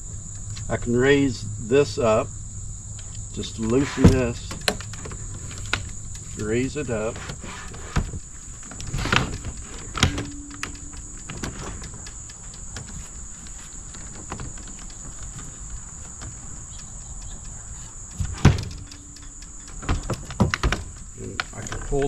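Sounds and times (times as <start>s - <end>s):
high-pitched insect chorus: 0.0s - 22.0s
clunks and knocks of trolling motor: 3.6s - 12.1s, 18.2s - 22.0s.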